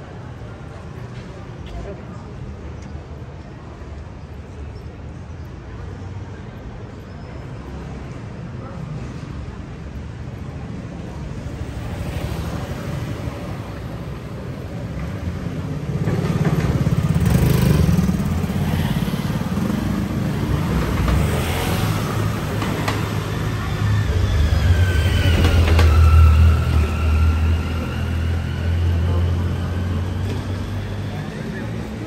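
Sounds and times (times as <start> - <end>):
scooters riding past: 11.5 - 32.0.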